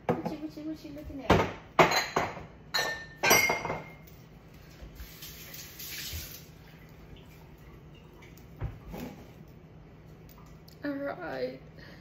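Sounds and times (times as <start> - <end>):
glass clinking: 1.8 - 4.2
liquid running: 4.4 - 10.8.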